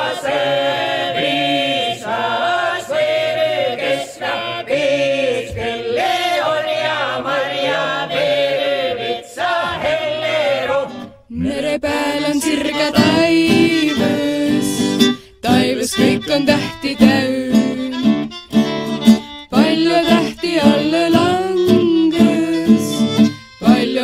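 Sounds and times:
men singing unaccompanied: 0:00.0 - 0:17.7, 0:19.5 - 0:23.0, 0:23.6 - 0:24.0
song with strummed acoustic guitar: 0:10.9 - 0:24.0.

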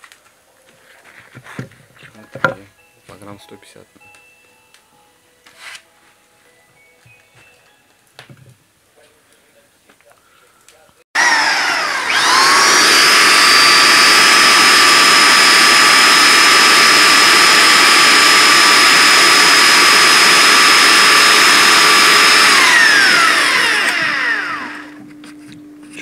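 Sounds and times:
angle grinder whining: 0:11.2 - 0:26.0.

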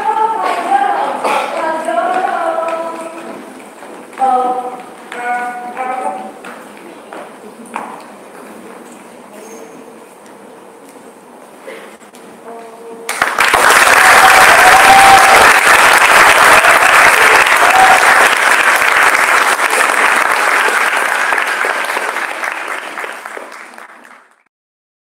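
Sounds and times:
audience applauding: 0:13.1 - 0:24.5.

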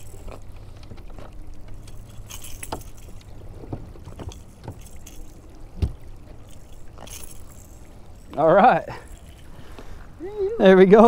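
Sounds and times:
fishing hooks clicking and rattling: 0:00.0 - 0:00.5, 0:01.2 - 0:03.4, 0:04.0 - 0:09.6
low steady rumble: 0:00.0 - 0:11.0.

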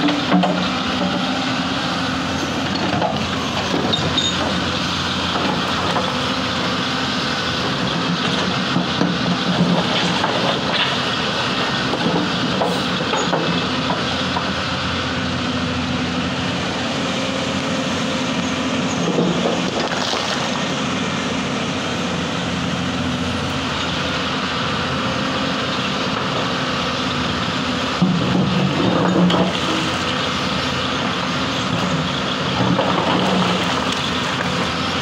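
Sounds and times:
excavator diesel engine running: 0:00.0 - 0:35.0.

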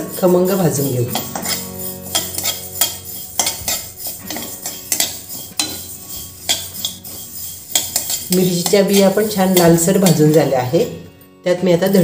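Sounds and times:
metal spatula scraping a metal pan: 0:00.0 - 0:10.7.

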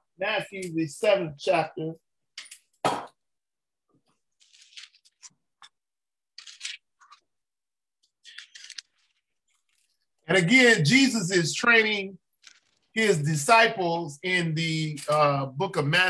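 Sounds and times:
book pages turning: 0:04.3 - 0:05.7, 0:06.4 - 0:07.3, 0:08.1 - 0:10.0, 0:12.4 - 0:13.0.

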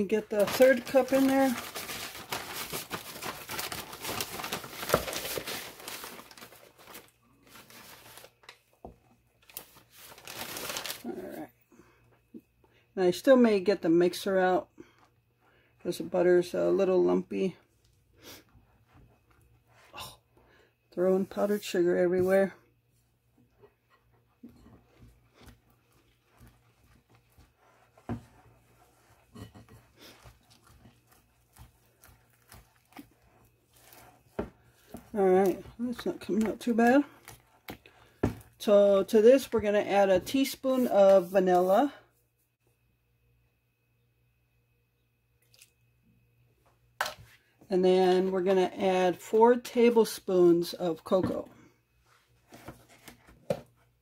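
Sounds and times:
plastic bag crinkling: 0:00.0 - 0:08.7, 0:09.4 - 0:11.5
spoon stirring frosting in bowl: 0:24.2 - 0:38.8.

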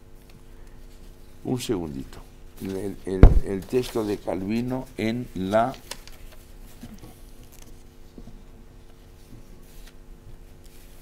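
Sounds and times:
steady electrical hum: 0:00.0 - 0:11.0
paper rustling: 0:02.6 - 0:08.3, 0:08.9 - 0:11.0.

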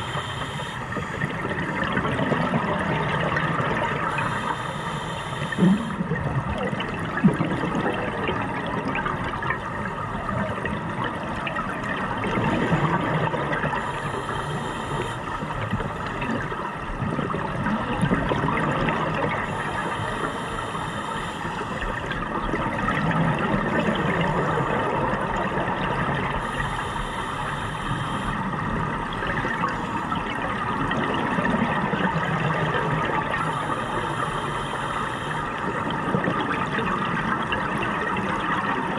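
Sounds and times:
scuba regulator breathing: 0:00.0 - 0:01.8, 0:03.9 - 0:06.1, 0:13.6 - 0:16.1, 0:19.3 - 0:22.1, 0:26.2 - 0:28.6, 0:33.2 - 0:36.0
exhaled bubbles gurgling: 0:00.0 - 0:38.9.

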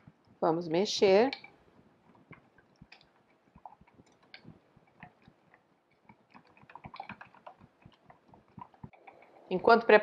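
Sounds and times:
whisk stirring in metal bowl: 0:02.1 - 0:09.4.

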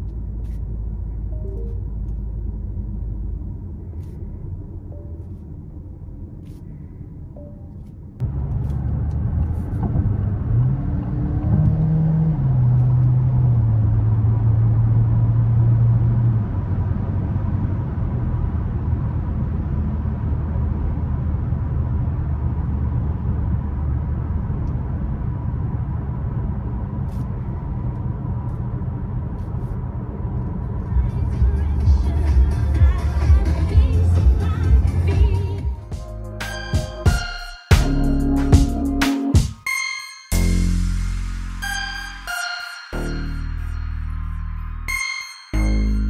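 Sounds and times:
tyre and road noise: 0:07.7 - 0:37.1
car engine accelerating: 0:08.2 - 0:36.2.

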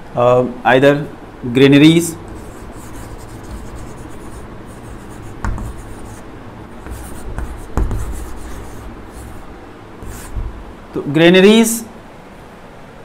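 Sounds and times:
chalk tapping on board: 0:02.2 - 0:06.2, 0:06.8 - 0:09.4, 0:10.0 - 0:10.6
chalk scratching on blackboard: 0:02.2 - 0:10.6.

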